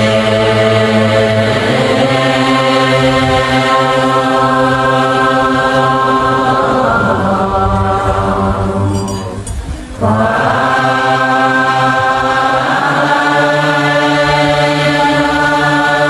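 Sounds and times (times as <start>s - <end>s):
crowd chanting a prayer: 0.0s - 16.0s.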